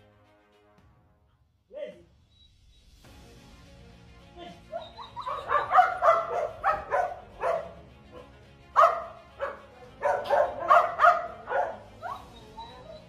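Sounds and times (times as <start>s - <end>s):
dog barking excitedly: 4.8s - 12.3s.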